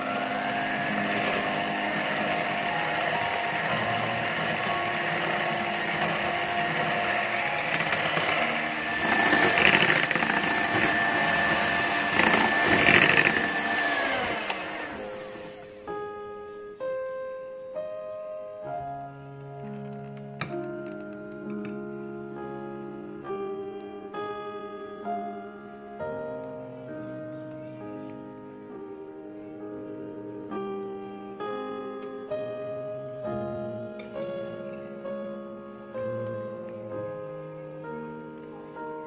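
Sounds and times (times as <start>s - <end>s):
electric hand mixer whining: 0.0s - 16.0s
soft piano music: 0.0s - 39.0s.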